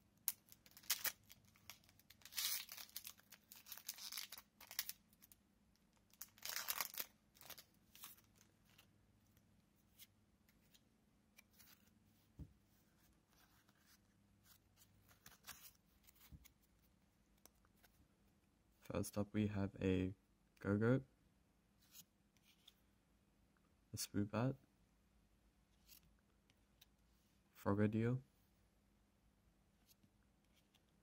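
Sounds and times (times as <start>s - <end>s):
foil wrapper tearing and crinkling: 0.3s - 5.0s, 6.1s - 8.1s
cards being handled: 0.3s - 18.0s.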